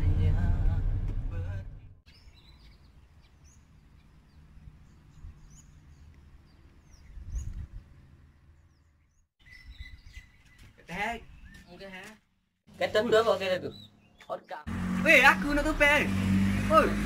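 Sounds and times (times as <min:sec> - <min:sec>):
faint low outdoor rumble: 0:00.0 - 0:02.0
birds chirping: 0:02.1 - 0:16.4.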